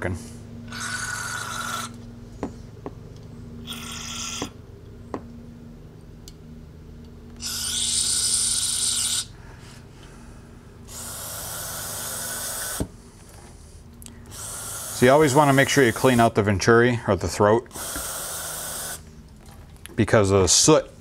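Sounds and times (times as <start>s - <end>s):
lawn mower droning: 0.0s - 3.8s.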